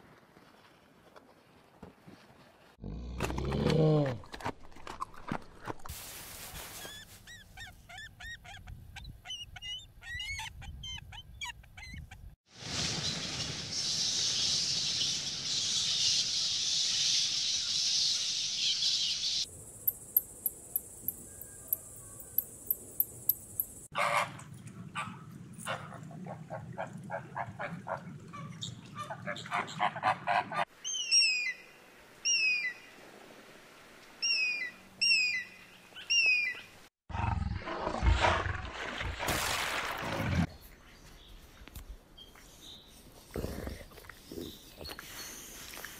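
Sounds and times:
animal chirping calls: 0:07.3 - 0:12.3.

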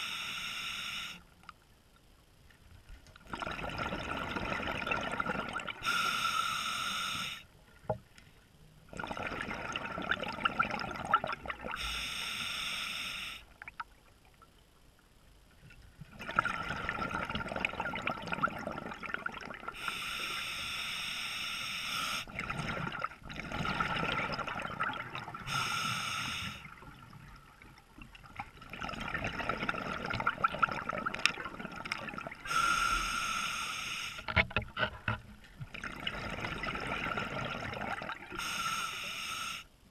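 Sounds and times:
regulator inhale hiss: 0:00.0 - 0:01.4, 0:05.8 - 0:07.5, 0:11.8 - 0:13.5, 0:19.8 - 0:22.3, 0:25.4 - 0:26.7, 0:32.5 - 0:34.3, 0:38.4 - 0:39.8.

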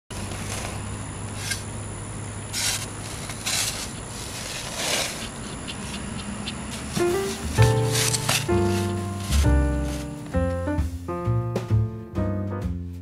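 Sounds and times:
shovel scraping packed soil: 0:00.1 - 0:01.7, 0:02.4 - 0:06.0, 0:06.7 - 0:10.4
low steady hum: 0:00.1 - 0:11.2.

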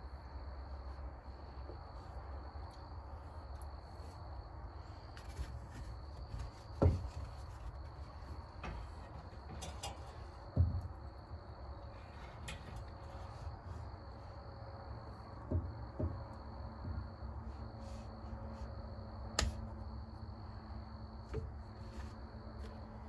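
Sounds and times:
dull thuds: 0:05.3 - 0:14.4, 0:15.0 - 0:18.0.

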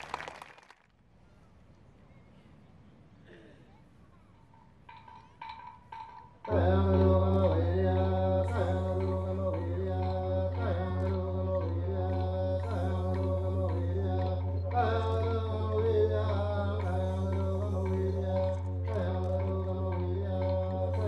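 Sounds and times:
didgeridoo drone: 0:06.5 - 0:21.0
chanted melody: 0:06.6 - 0:21.0.

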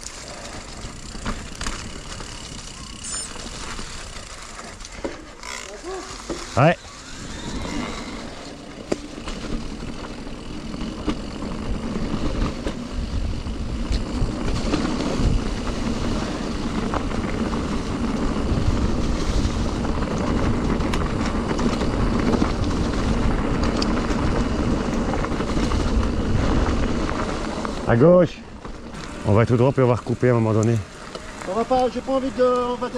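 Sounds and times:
bike tyre rumble: 0:00.0 - 0:32.9
wind rushing over microphone: 0:06.9 - 0:28.2
small clicks and rattles: 0:20.0 - 0:26.0.

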